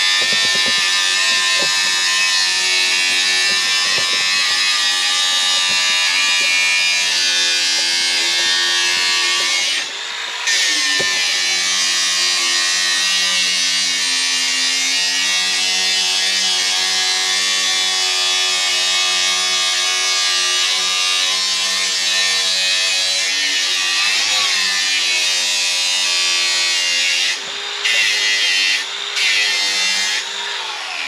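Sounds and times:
grinding disc on metal: 0.0 - 12.7
angle grinder motor whine: 0.0 - 18.5, 20.6 - 31.0.

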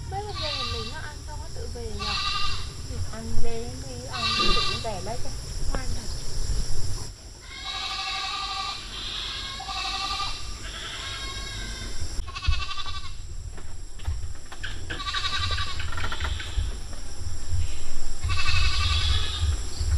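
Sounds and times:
goats bleating: 0.0 - 1.0, 2.0 - 2.7, 4.1 - 4.8, 7.4 - 13.2, 14.9 - 16.5
low rumble: 13.1 - 19.9.

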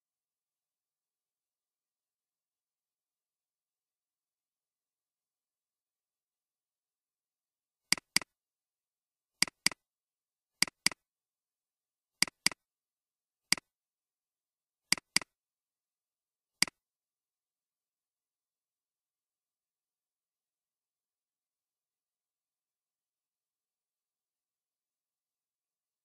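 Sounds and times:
computer mouse clicks: 7.9 - 8.3, 9.4 - 9.8, 10.6 - 11.0, 12.2 - 12.6, 14.9 - 15.3.

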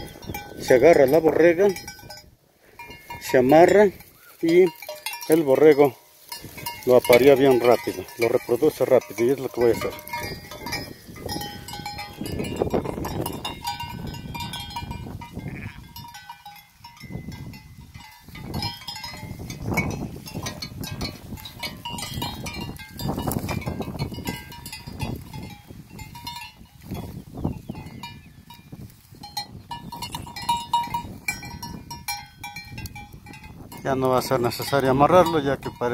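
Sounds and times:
sheep bell clinking: 0.0 - 35.9
sheep bleating: 15.4 - 16.0.

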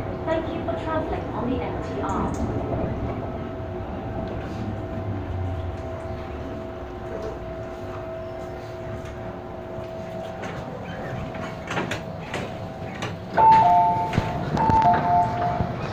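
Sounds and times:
train interior hum: 0.0 - 15.9
two-tone door chime: 7.2 - 15.9.

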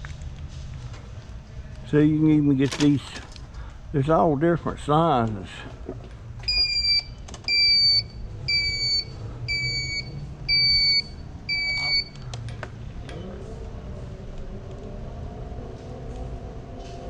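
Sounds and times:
low hum: 0.0 - 17.0
electronic warning beeps: 6.4 - 12.2.

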